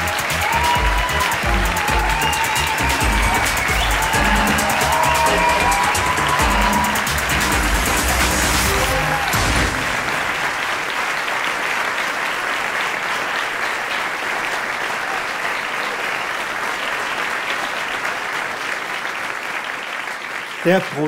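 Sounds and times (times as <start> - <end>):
music ending: 0.0 - 10.6
large audience applauding: 0.0 - 21.0.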